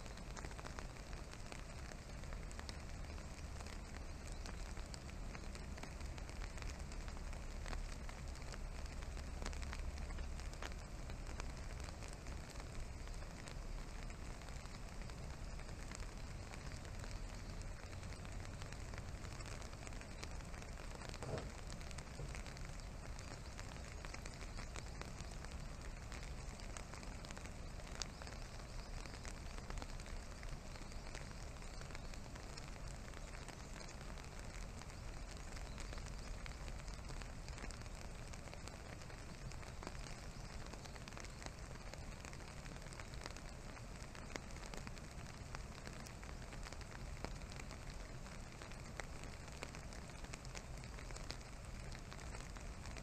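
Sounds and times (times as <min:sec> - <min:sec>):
faint background hiss: 0:00.0 - 0:53.0
soft ticks: 0:00.0 - 0:53.0.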